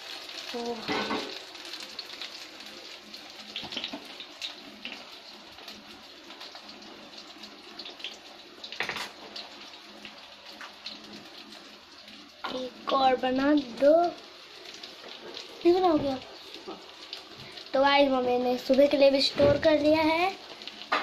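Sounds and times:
food sizzling in oil: 0:00.0 - 0:21.0.

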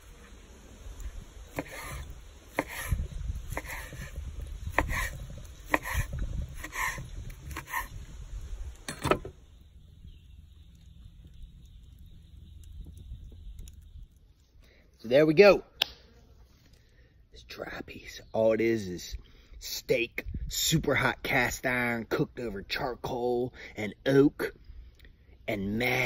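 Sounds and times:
knife scraping: 0:01.6 - 0:04.1, 0:04.8 - 0:08.0.

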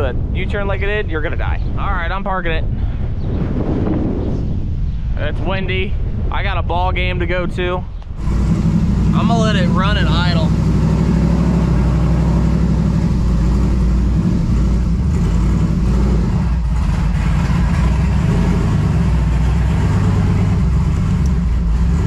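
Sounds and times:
car engine idling: 0:08.1 - 0:22.0.

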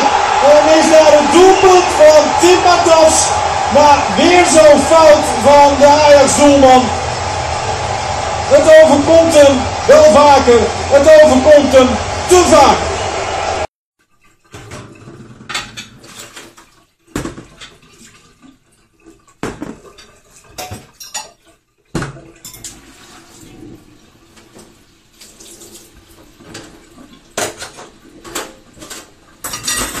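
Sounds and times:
dishes and cutlery clinking: 0:19.6 - 0:21.4, 0:27.4 - 0:30.0.

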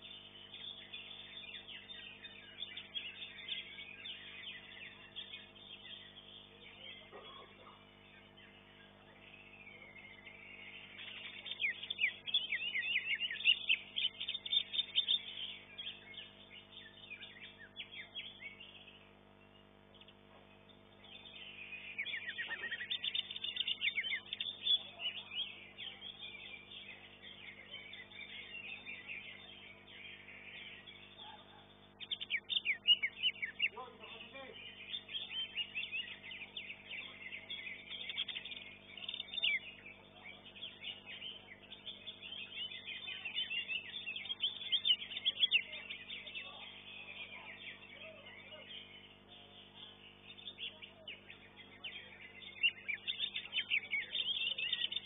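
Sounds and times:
bird singing high chattering notes: 0:00.0 - 0:55.0.

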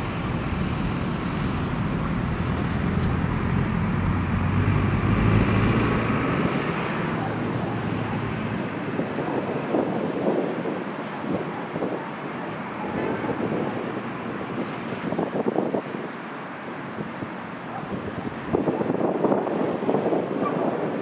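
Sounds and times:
freight train rumbling past: 0:00.0 - 0:08.2.

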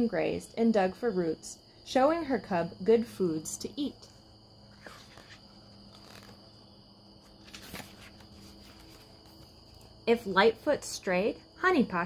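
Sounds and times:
insects trilling: 0:00.0 - 0:12.0
book page turning: 0:04.7 - 0:10.0.

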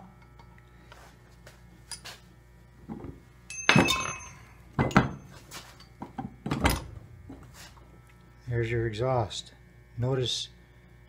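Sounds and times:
metal clunks and knocks: 0:02.9 - 0:05.3.

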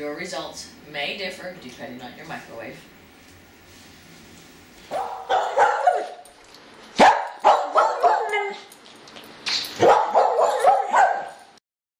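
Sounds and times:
dog barking and yapping: 0:04.9 - 0:06.3, 0:07.0 - 0:08.7, 0:09.7 - 0:11.5.

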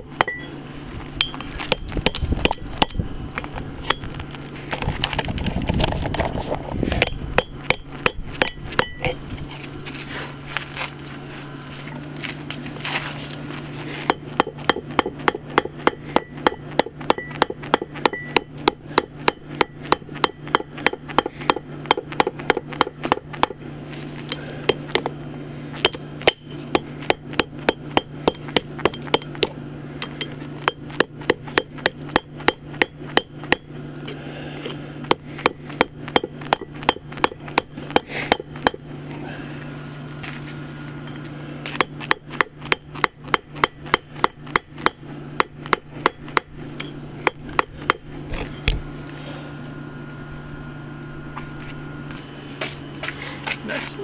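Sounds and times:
steady low hum: 0:00.0 - 0:54.0
hammer ringing on anvil: 0:00.2 - 0:00.6, 0:01.2 - 0:03.0, 0:07.0 - 0:09.2, 0:14.1 - 0:23.6, 0:25.8 - 0:33.7.

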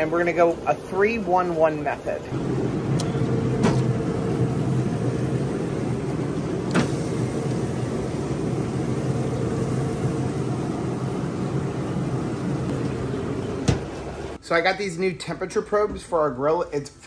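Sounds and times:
grill fan humming: 0:00.0 - 0:16.9.

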